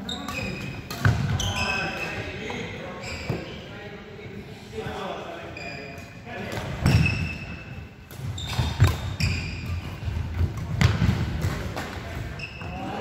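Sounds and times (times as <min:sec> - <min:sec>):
shoes squeaking: 0:00.0 - 0:03.6, 0:08.2 - 0:11.1, 0:12.2 - 0:13.0.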